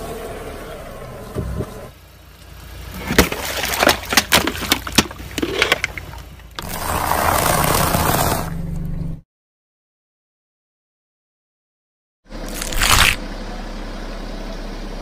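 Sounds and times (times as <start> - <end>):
car tyres rolling on asphalt: 0.0 - 9.2
sharp cracks and snaps: 12.5 - 13.2
tyre crunching cheese puffs: 12.5 - 13.2.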